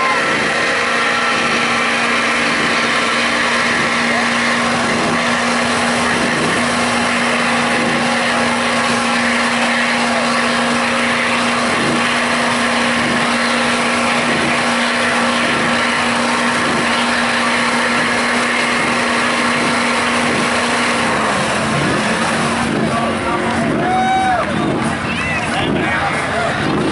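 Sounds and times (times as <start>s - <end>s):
diesel truck engine running: 0.0s - 26.9s.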